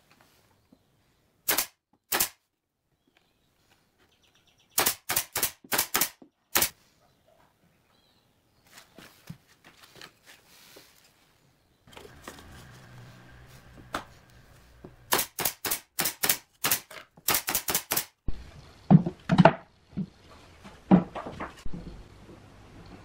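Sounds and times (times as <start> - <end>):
nail gun firing: 1.5 - 2.4, 4.8 - 6.8, 15.1 - 18.2
heavy wooden knocks: 18.8 - 22.0.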